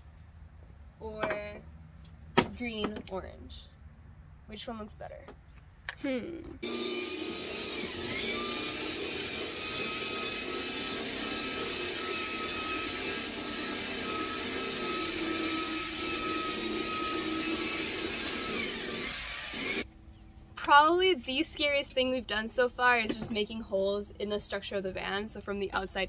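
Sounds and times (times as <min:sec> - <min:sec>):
electric drill boring through metal: 0:06.6 - 0:19.8.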